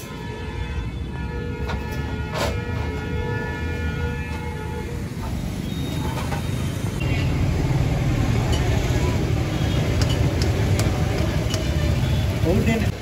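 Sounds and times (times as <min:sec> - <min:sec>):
street noise: 0:00.0 - 0:13.0
motor vehicle rumble: 0:04.2 - 0:13.0.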